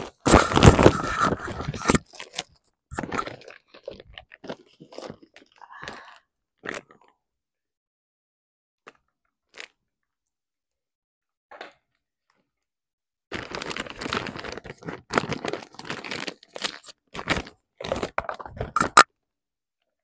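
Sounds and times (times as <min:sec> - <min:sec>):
packaging crinkling: 0:00.0 - 0:05.5, 0:13.3 - 0:19.0.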